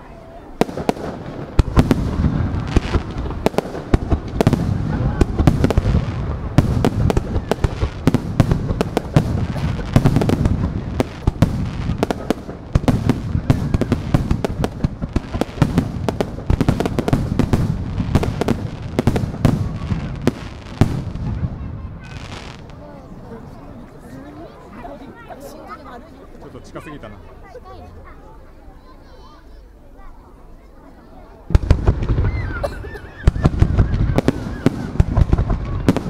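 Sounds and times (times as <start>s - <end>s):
fireworks bangs and cracks: 0.5s - 22.9s, 31.5s - 36.0s.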